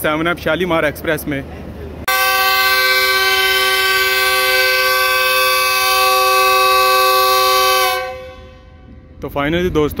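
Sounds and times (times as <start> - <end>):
locomotive horn blast: 2.1 - 9.2.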